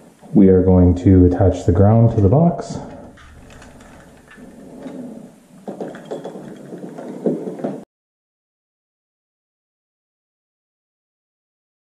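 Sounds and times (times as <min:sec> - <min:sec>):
wires rustling and scraping: 0:01.8 - 0:07.8.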